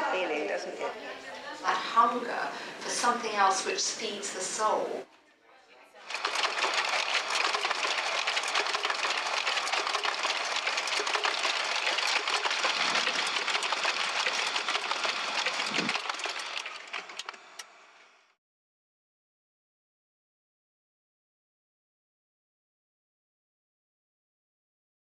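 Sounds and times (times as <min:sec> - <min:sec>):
dense rattling clicks: 0:06.1 - 0:17.7.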